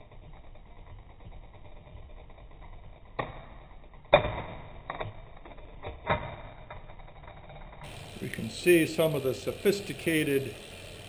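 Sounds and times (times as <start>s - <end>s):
bicycle chain ticking whir: 0.0s - 11.0s.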